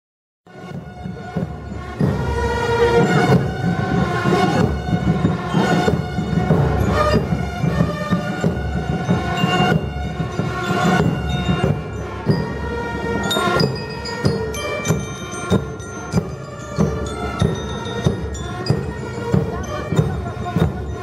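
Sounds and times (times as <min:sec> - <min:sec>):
bell lyres melody: 0:00.5 - 0:21.0
bass drums: 0:00.7 - 0:12.8.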